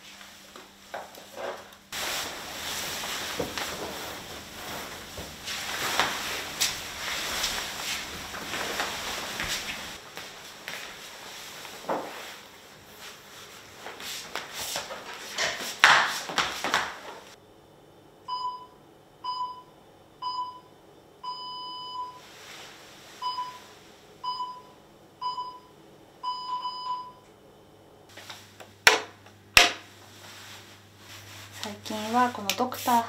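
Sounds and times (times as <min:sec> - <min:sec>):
yoga mat unrolling: 0:00.3 - 0:17.4.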